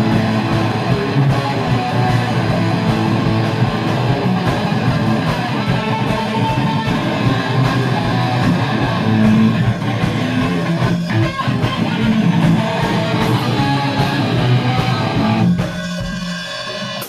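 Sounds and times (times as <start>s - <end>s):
drum kit: 0.0s - 17.0s
electric guitar strummed: 0.0s - 17.0s.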